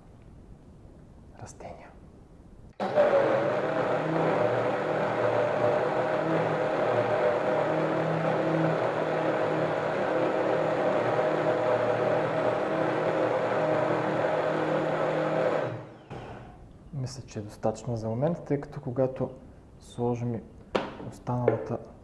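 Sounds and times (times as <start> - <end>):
blender motor whine: 2.8 - 16.7.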